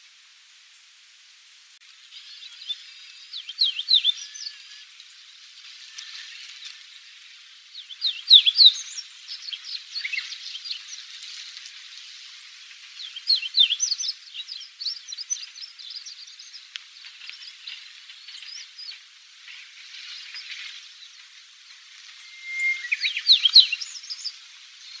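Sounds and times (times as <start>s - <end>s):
faint steady hiss: 0.0s - 25.0s
bird twittering: 22.1s - 24.3s.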